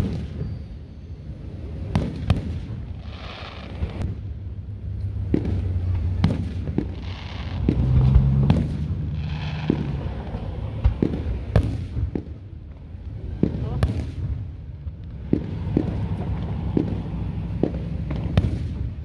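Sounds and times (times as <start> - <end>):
low rumble: 2.6 - 19.0
fireworks shells bursting: 5.3 - 12.4.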